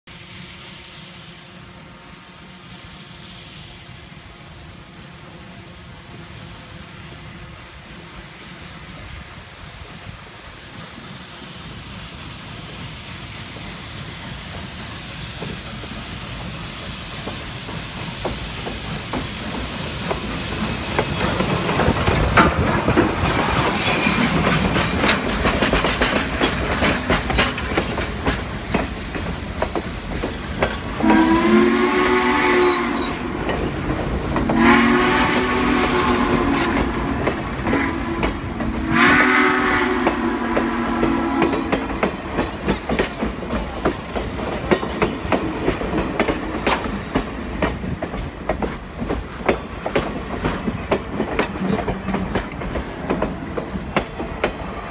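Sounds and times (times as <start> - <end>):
steam hissing: 0.1 - 54.9
wheels clacking over rail joints: 17.2 - 31.1, 40.0 - 54.7
steam whistle blasts: 31.0 - 33.3, 34.5 - 37.0, 37.6 - 41.8.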